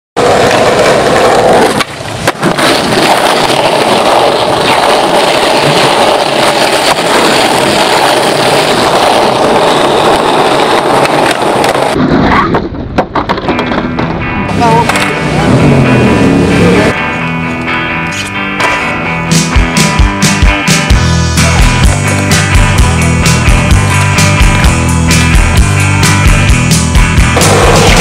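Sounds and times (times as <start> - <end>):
skateboard clacks: 0.2 - 15.2
skateboard wheels rolling on pavement: 0.2 - 28.0.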